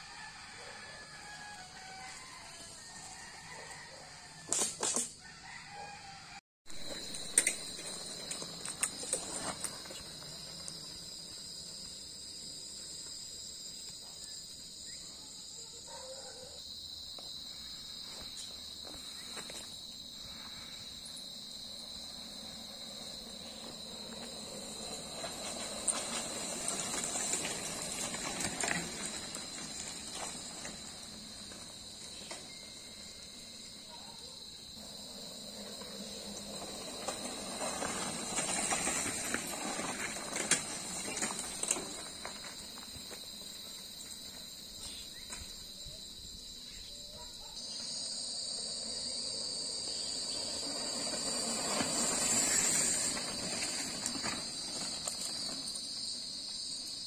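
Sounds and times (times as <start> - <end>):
bike tyres on dirt track: 0.0 - 16.0, 16.6 - 57.0
insects buzzing: 0.0 - 57.0.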